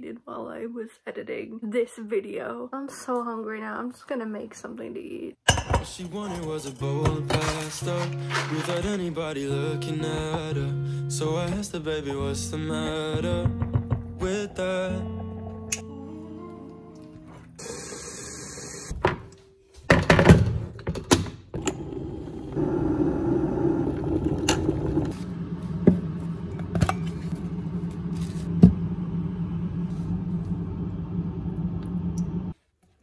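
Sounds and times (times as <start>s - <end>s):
kitchen things knocking and clattering: 5.5s - 7.7s, 13.4s - 14.2s, 19.0s - 21.6s
song music: 5.9s - 17.8s
electric kettle heating water: 17.6s - 19.0s, 21.6s - 32.6s.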